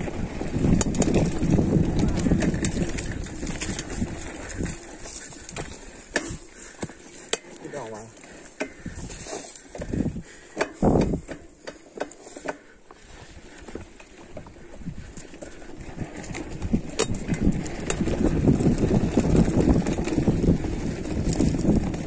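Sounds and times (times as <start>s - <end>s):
bike rattling over rough ground: 0.0s - 22.0s
person speaking: 7.4s - 8.2s.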